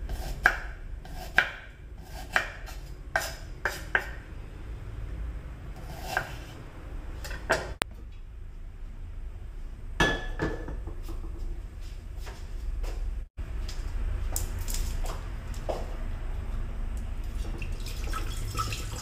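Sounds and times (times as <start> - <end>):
knife cutting on wooden board: 0.1 - 4.2.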